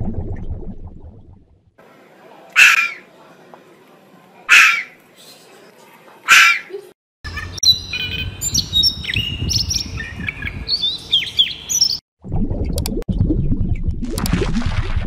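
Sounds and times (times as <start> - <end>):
low rumble: 0.0 - 1.7, 12.2 - 15.0
songbird singing: 7.3 - 12.0.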